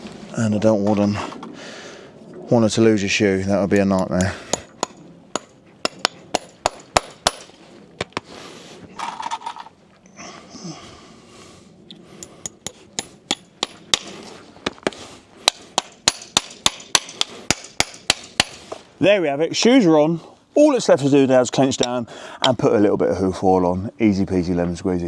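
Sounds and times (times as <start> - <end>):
hammer tapping horseshoe nails: 4.0 - 8.2, 12.2 - 18.6.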